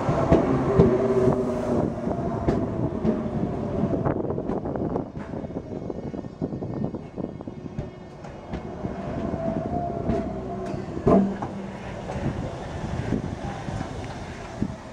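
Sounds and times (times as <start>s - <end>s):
train wheels rumbling on rails: 0.0s - 14.9s
loud clunk: 10.1s - 11.7s.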